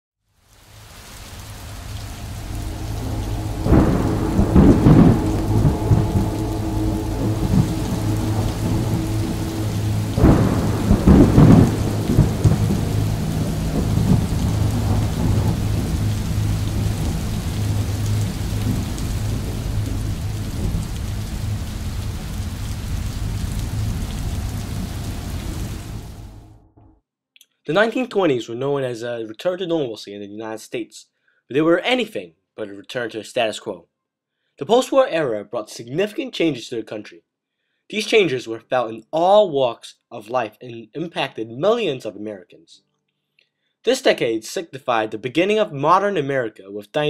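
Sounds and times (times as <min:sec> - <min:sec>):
steady rain: 0:00.3 - 0:26.6
thunderclaps rumbling: 0:01.4 - 0:26.6
low drone: 0:01.5 - 0:26.9.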